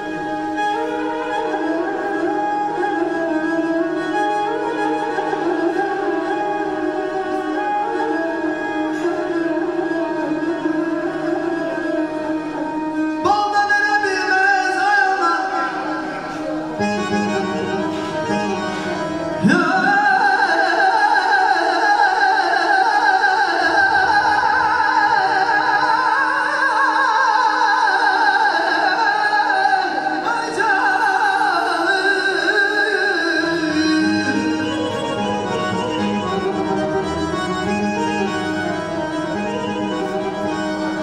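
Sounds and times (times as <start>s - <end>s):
man singing into a microphone: 13.0s - 16.5s, 19.0s - 36.8s.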